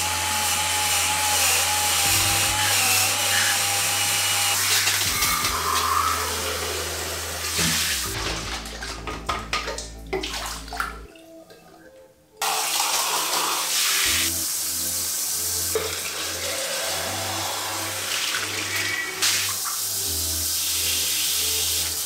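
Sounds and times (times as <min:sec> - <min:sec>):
water spraying from shower head: 0:00.0 - 0:09.9, 0:12.4 - 0:22.0
water splashing on tiled floor: 0:07.5 - 0:11.6, 0:12.4 - 0:14.2.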